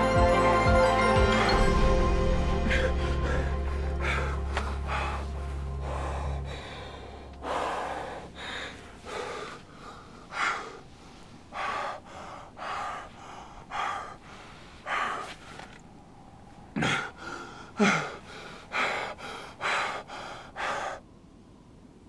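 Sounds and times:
low music drone: 0.0 - 10.8
man gasping for breath: 2.6 - 15.7, 16.8 - 21.0.

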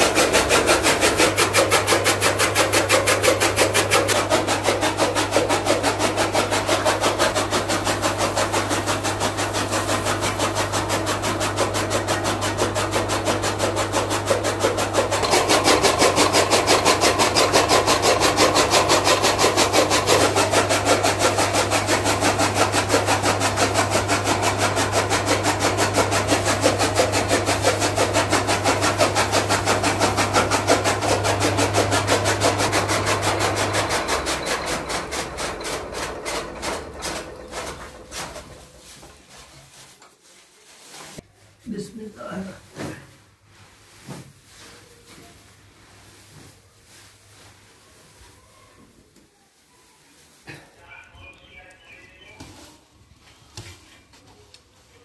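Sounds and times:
chaff cutter chopping stalks: 0.0 - 39.2
electric motor hum: 0.0 - 39.2.

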